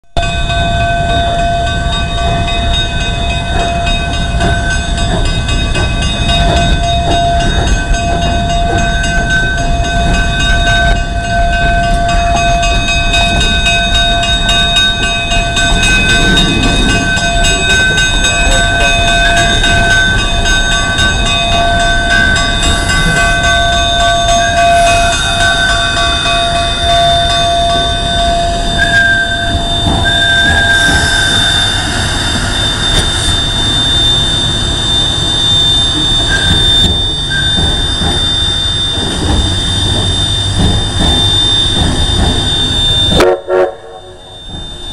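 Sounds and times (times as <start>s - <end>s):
steam locomotive rumbling: 0.0s - 44.9s
high thin tones: 15.5s - 36.7s.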